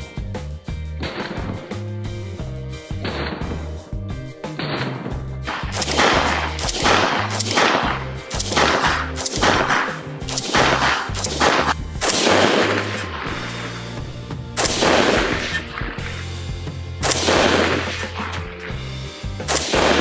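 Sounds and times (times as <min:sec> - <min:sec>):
background music with bass: 0:00.0 - 0:20.0
rifle firing single shots: 0:04.6 - 0:13.8, 0:14.6 - 0:16.4, 0:17.0 - 0:18.8, 0:19.4 - 0:20.0.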